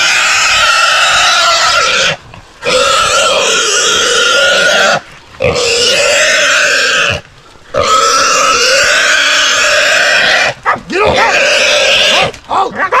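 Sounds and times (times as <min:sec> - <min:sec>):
hog squealing: 0:07.8 - 0:13.0.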